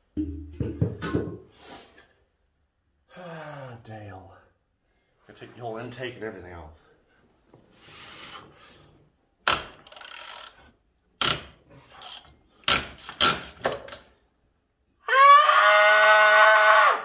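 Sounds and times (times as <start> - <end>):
ratchet wrench clicking: 9.4 - 13.6.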